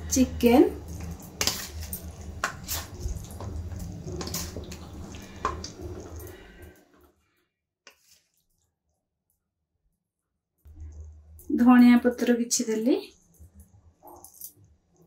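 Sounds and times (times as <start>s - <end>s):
low hum: 10.7s - 12.2s.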